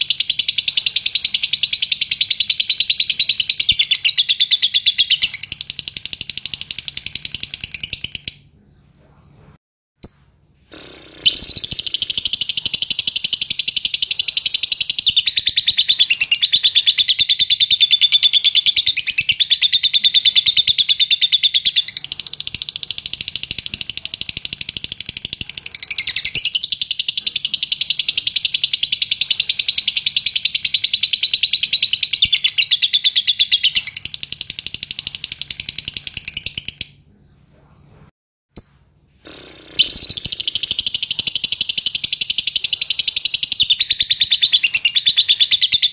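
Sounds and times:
bird chattering trills: 0:38.6 - 0:45.9.

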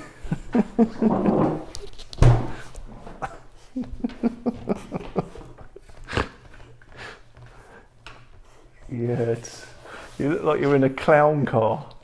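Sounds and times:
breathy laughter: 0:00.0 - 0:01.9, 0:03.0 - 0:07.2.

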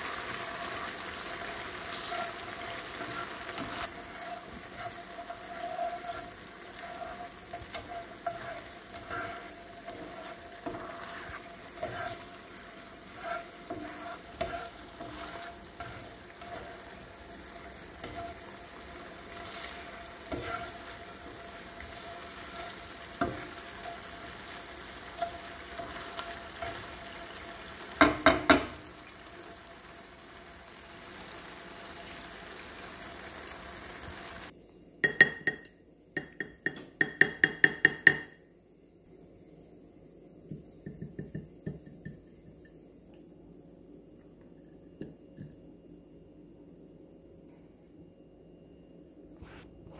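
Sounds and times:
spatula scraping a pan: 0:00.0 - 0:28.7
food sizzling in a frying pan: 0:00.0 - 0:35.6.

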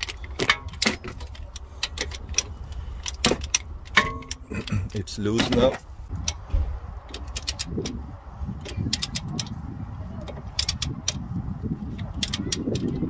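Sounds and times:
low rumble: 0:02.4 - 0:12.2
socket ratchet clicking: 0:10.4 - 0:11.3, 0:11.9 - 0:13.0.

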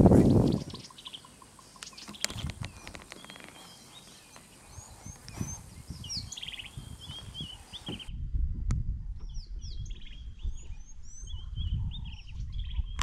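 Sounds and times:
birds chirping and whistling: 0:00.2 - 0:08.1, 0:09.2 - 0:13.0
bird trill: 0:00.3 - 0:08.1.

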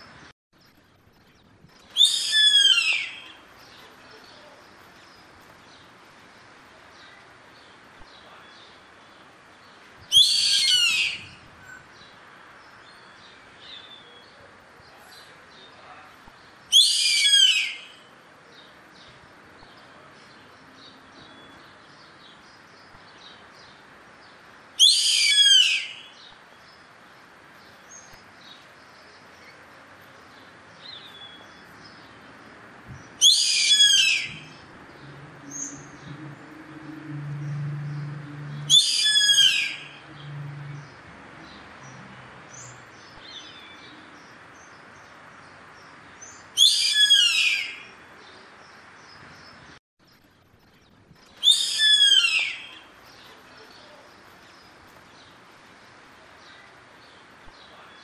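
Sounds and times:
bird calling: 0:01.9 - 0:03.8, 0:33.2 - 0:34.7, 0:38.6 - 0:40.4, 0:46.6 - 0:47.9, 0:51.4 - 0:54.1
low hum: 0:34.4 - 0:38.7.

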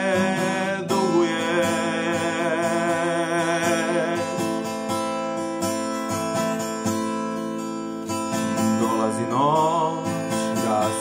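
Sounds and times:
man singing: 0:00.0 - 0:05.2, 0:08.3 - 0:11.0
acoustic guitar strumming chords: 0:00.0 - 0:11.0.

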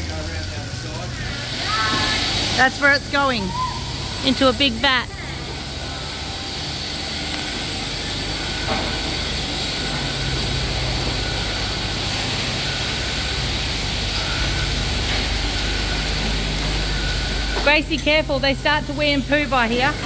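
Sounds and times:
milking machinery humming: 0:00.0 - 0:20.0.

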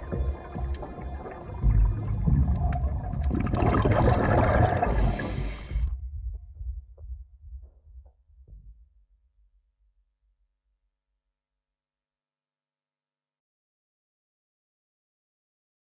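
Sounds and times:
regulator exhaust bubbles: 0:00.0 - 0:06.0
low underwater rumble: 0:00.0 - 0:08.7.

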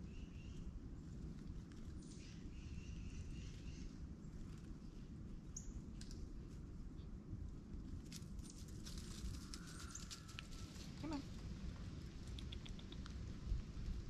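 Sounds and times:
low outdoor rumble: 0:00.0 - 0:14.0
squirrel moving over dry leaves: 0:07.7 - 0:14.0.

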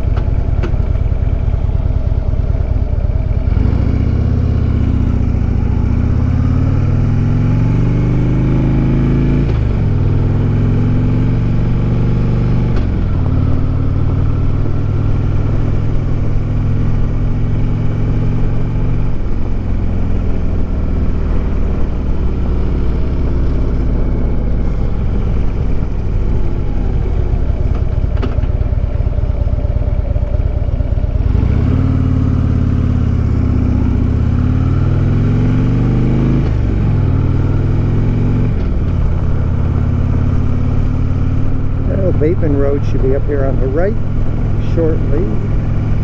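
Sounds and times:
motorcycle engine accelerating: 0:00.0 - 0:46.0.

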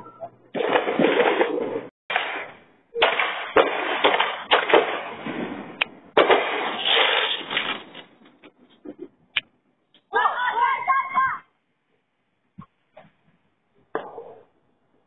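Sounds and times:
fireworks bangs and crackling: 0:02.1 - 0:08.2.

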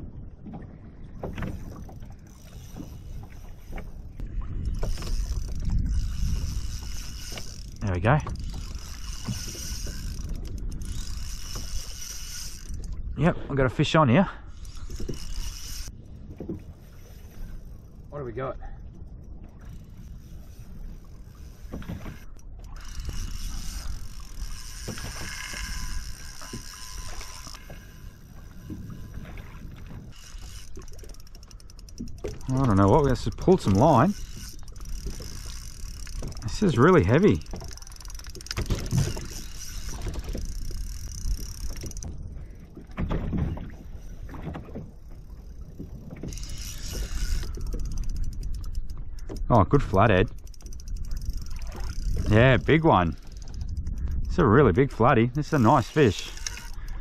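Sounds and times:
wind and water chop rumble: 0:00.0 - 0:57.0
fishing reel drag buzzing: 0:01.2 - 0:13.2, 0:13.9 - 0:18.2, 0:19.1 - 0:42.9, 0:43.6 - 0:57.0
water slapping against kayak hull: 0:34.6 - 0:47.8.

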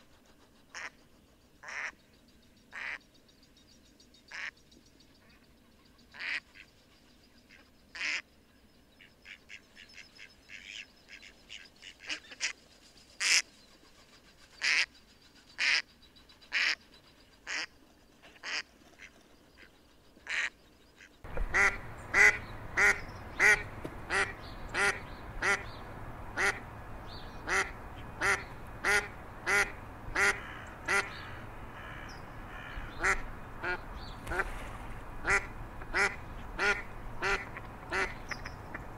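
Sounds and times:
steady background hiss: 0:00.0 - 0:38.9
duck quacking: 0:21.4 - 0:25.7, 0:26.4 - 0:26.6, 0:27.4 - 0:34.5, 0:35.2 - 0:38.8.

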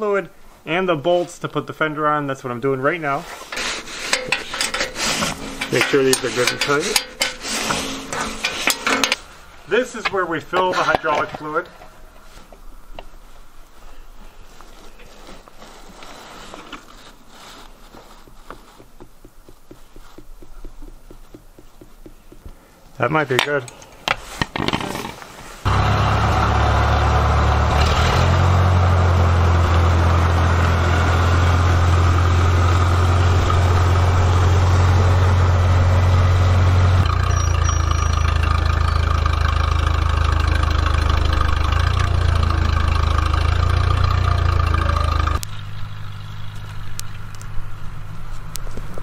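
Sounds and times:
tractor engine running: 0:03.5 - 0:11.6, 0:25.6 - 0:49.0.

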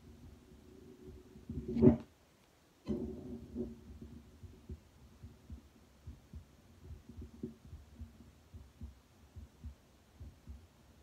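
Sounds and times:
heartbeat through stethoscope: 0:02.9 - 0:11.0.

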